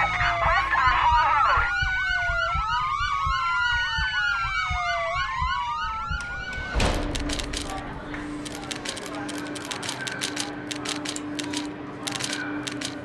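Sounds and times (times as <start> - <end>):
police siren wail: 0.0 - 6.8
siren yelp: 0.0 - 6.8.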